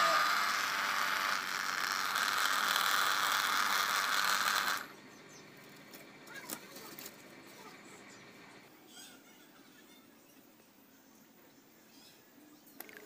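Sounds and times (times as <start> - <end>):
small motor spinning propeller: 0.0 - 5.0.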